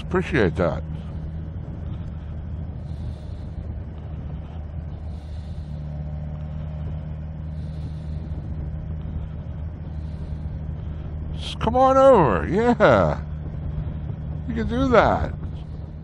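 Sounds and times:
motorcycle engine cruising: 0.0 - 16.0
wind noise on microphone: 0.8 - 11.7, 12.8 - 16.0.

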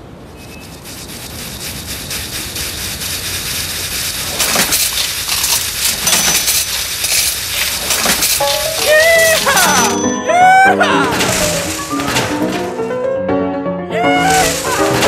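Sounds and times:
coins clinking through metal pipes: 2.8 - 12.8, 14.2 - 15.0.

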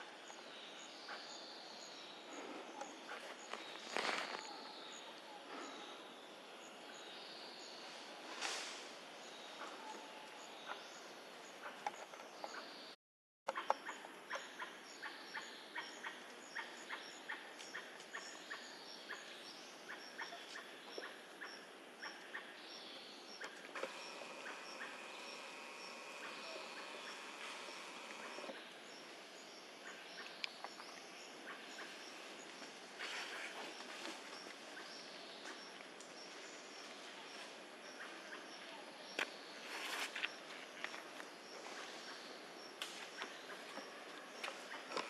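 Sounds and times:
birds chirping: 0.0 - 8.4, 9.0 - 45.0
steady buzzing tone: 23.8 - 28.6.

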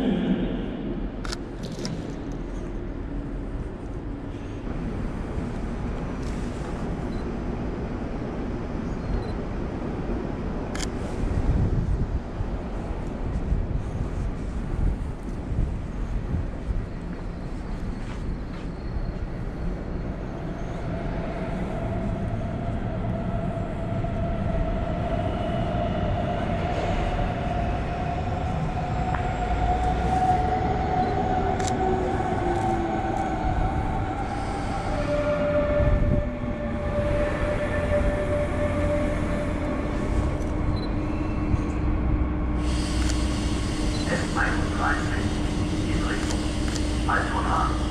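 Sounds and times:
low rumble: 0.0 - 17.6, 31.0 - 47.9
train humming tones: 0.0 - 47.9
electric train motors whining: 25.8 - 47.9.

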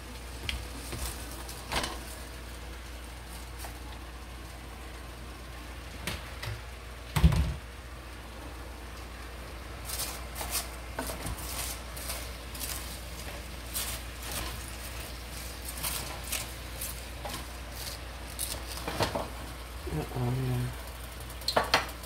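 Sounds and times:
steady low hum: 0.0 - 22.0
spoon stirring shredded cabbage: 9.8 - 19.4.

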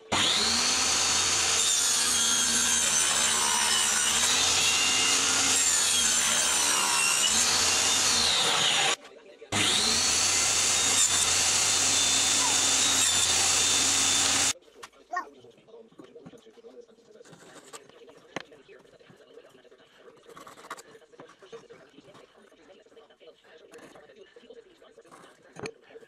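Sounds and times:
table saw whining: 0.0 - 14.6.

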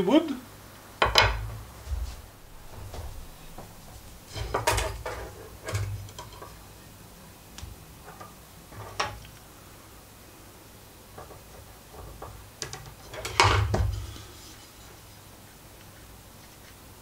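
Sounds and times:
wooden dowel knocking on table: 1.0 - 6.4
wooden ruler clattering: 1.0 - 6.8, 7.6 - 9.4, 11.1 - 14.6.

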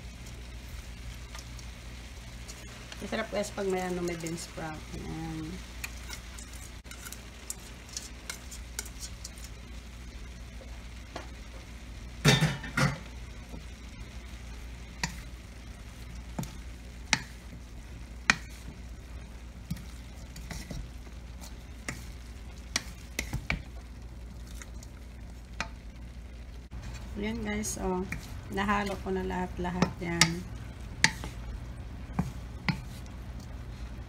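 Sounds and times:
low steady hum: 0.0 - 34.0
vegetables sizzling in a wok: 0.0 - 34.0
wooden spatula scraping a pan: 19.7 - 23.6, 31.0 - 31.5.

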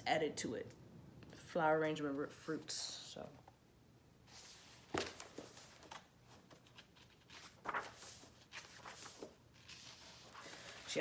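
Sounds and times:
book pages turning: 4.3 - 11.0.

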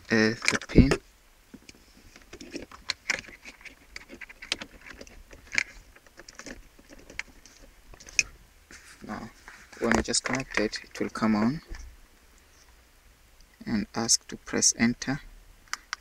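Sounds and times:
cable plug clicks and rustles: 0.3 - 8.3, 9.8 - 11.9, 15.7 - 16.0.

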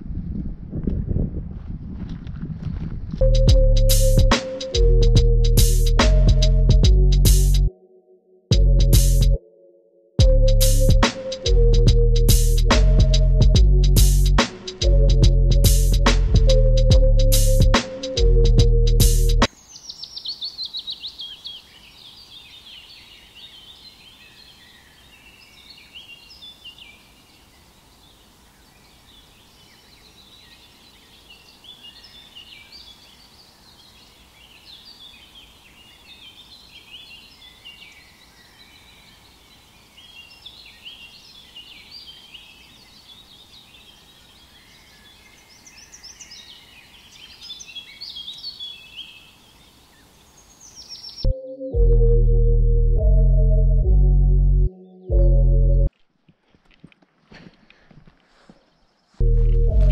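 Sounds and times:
small birds chirping: 19.4 - 52.6.

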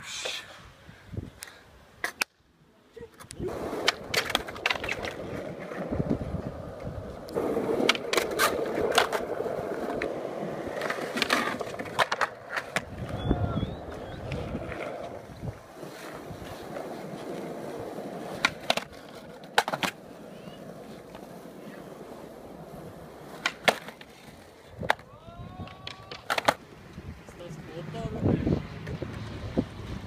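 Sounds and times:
skateboard wheels rolling on concrete: 0.0 - 30.0
skateboard clacking on ground: 3.1 - 13.2, 13.8 - 27.0.

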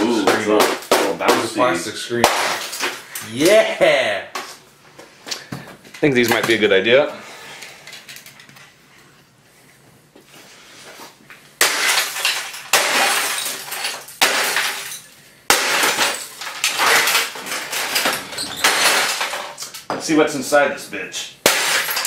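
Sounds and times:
shattered glass and plastic rattling: 2.2 - 3.2, 11.6 - 19.9, 21.4 - 22.0
broken debris crunching: 11.6 - 19.8.

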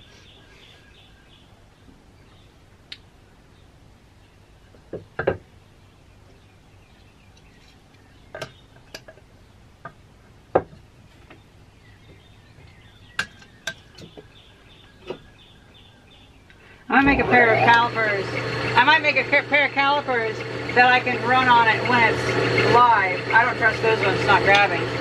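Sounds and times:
wood clacking on wood and metal: 8.3 - 11.4, 13.2 - 14.3.

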